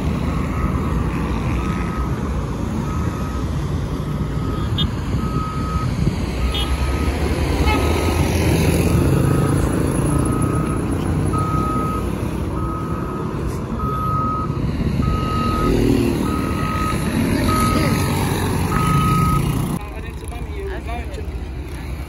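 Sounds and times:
road traffic rumble: 0.0 - 22.0
reversing alarm beeping: 0.3 - 7.3, 9.1 - 19.6.

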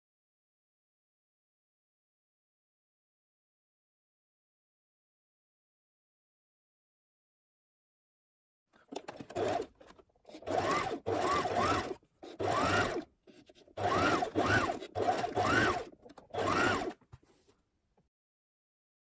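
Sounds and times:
sewing machine stitching fabric: 8.8 - 17.2.

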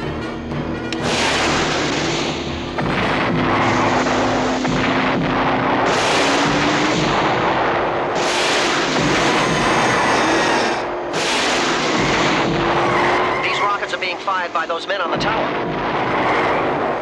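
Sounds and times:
low drone: 0.0 - 17.0
rotary machine gun firing: 1.0 - 13.3.

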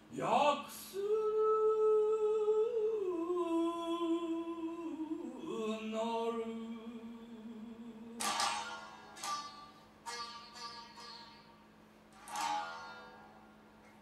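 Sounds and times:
person singing wordless chant: 0.1 - 8.6.

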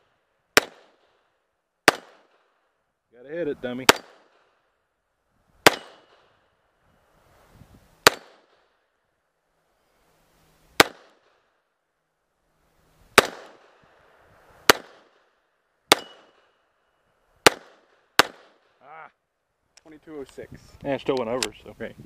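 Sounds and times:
pistol shots: 0.6 - 1.2, 1.8 - 2.5, 3.8 - 4.6, 5.6 - 6.3, 8.0 - 8.7, 10.8 - 11.4, 13.2 - 13.8, 14.6 - 16.6, 17.4 - 18.7.

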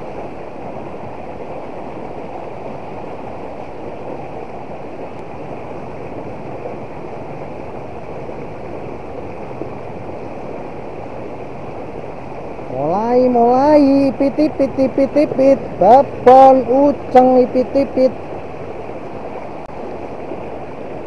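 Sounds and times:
river rushing over rocks: 0.0 - 21.0.

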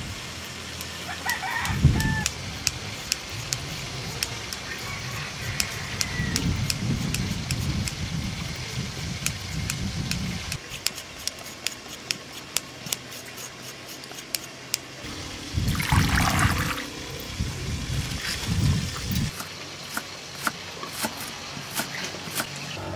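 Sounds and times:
water splashing and dripping: 15.2 - 17.4.

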